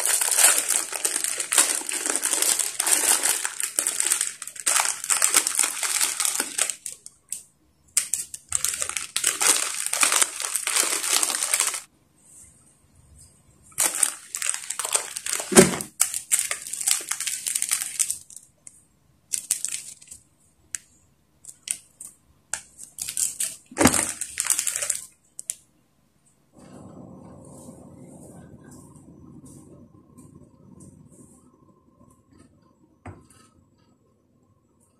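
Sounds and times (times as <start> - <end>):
plastic packets crinkling and tearing: 0.0 - 7.4, 8.0 - 11.9, 13.7 - 18.7, 19.3 - 20.2, 21.4 - 25.6.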